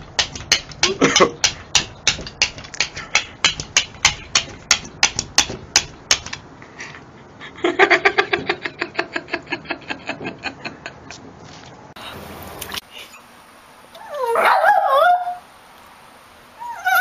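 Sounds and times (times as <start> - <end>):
dog tapping on glass: 0.1 - 6.4.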